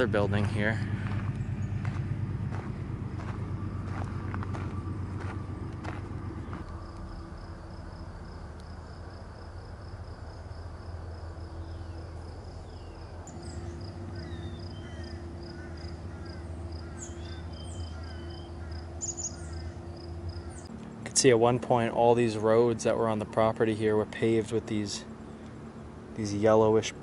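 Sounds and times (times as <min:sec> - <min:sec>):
low steady hum: 0:00.0 - 0:27.0
insect calling in even pulse: 0:06.6 - 0:20.7.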